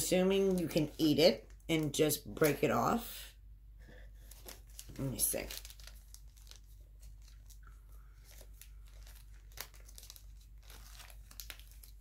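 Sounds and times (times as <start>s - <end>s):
packaging wrapper crinkling: 4.2s - 12.0s.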